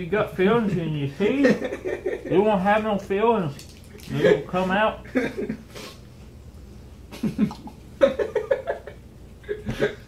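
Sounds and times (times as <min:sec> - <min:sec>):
man laughing stifled: 0:07.2 - 0:10.0.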